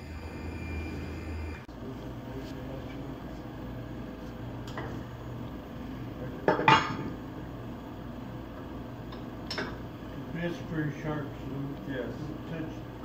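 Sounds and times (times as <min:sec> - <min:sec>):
machine whine: 0:00.0 - 0:13.0.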